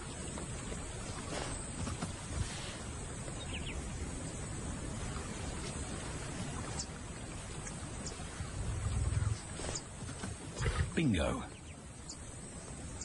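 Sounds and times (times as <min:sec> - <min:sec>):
outdoor wild ambience: 0:00.0 - 0:13.0
faint bird chirps: 0:10.6 - 0:13.0.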